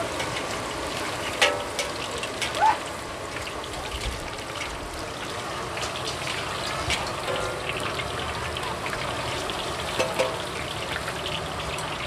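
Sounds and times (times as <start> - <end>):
food deep-frying in oil: 0.0 - 12.0
metal utensils scraping wok: 6.7 - 8.1.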